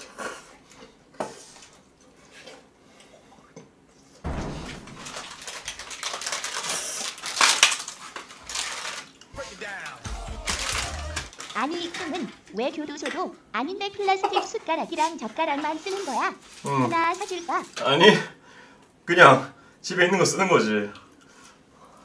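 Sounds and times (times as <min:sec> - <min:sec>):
loud rustling and knocking: 0:04.3 - 0:06.6.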